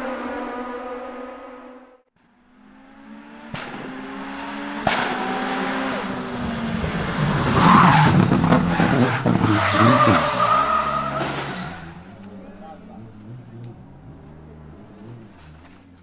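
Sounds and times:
race car accelerating: 0.0 - 16.0
sharp gear upshifts: 4.7 - 16.0.

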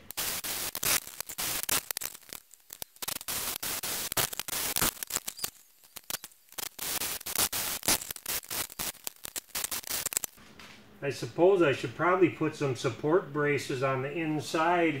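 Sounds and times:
welder arc crackling: 0.0 - 10.4.

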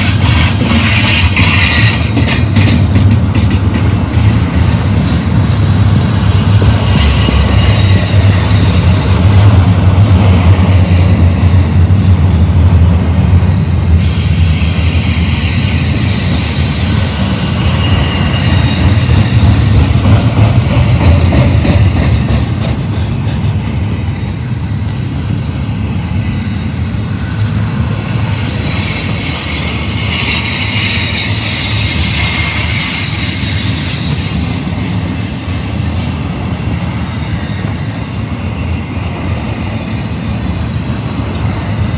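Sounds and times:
high squeal from wheels: 0.0 - 2.8, 6.2 - 9.4, 13.9 - 22.4, 25.1 - 41.9
freight train wheels rumbling: 0.0 - 41.9.

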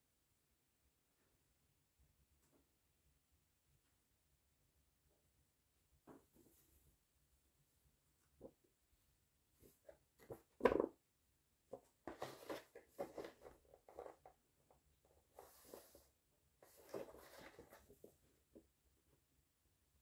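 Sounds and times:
paper booklet rustling: 11.8 - 14.4, 15.0 - 18.3
pages turning: 12.0 - 14.3, 16.6 - 18.1.

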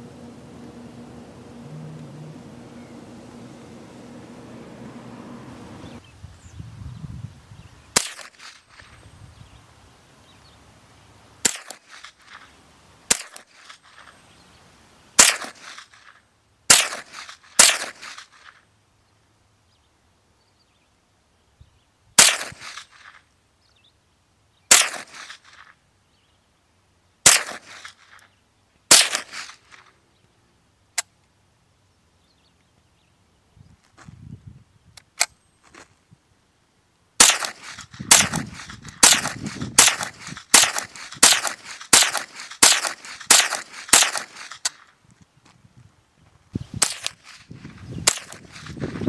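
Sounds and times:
rifle shots with echo: 8.0 - 8.5, 11.4 - 11.9, 15.2 - 15.8, 16.7 - 18.1, 22.2 - 22.8, 24.7 - 25.3, 27.2 - 27.8, 28.9 - 29.5, 37.2 - 44.7, 48.0 - 48.7.

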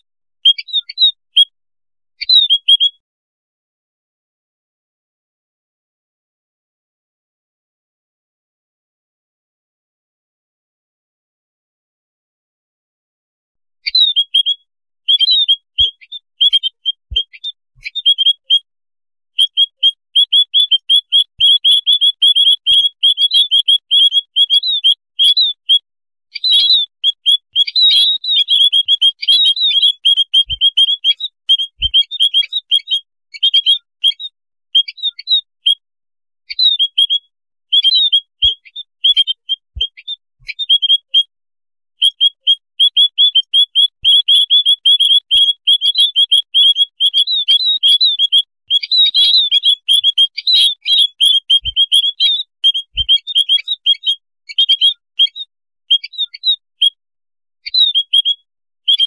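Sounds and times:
flock of small birds chirping: 19.4 - 25.8, 26.4 - 35.8, 42.0 - 55.4.

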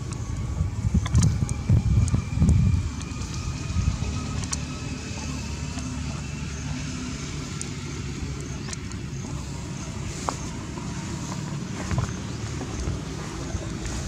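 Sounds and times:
vehicle engine humming: 0.0 - 14.0
faint clicks: 1.0 - 3.4.

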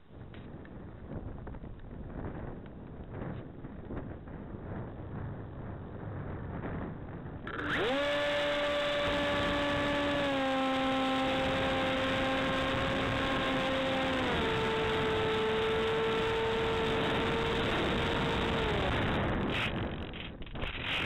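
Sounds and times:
wind rushing over microphone: 0.0 - 21.0
electric motor and propeller whine: 6.6 - 21.0.

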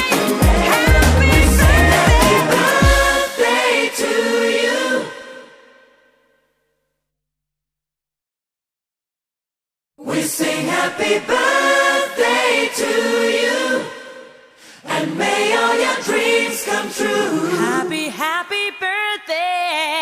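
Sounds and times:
choir singing a cappella: 0.0 - 6.1, 10.0 - 18.2.

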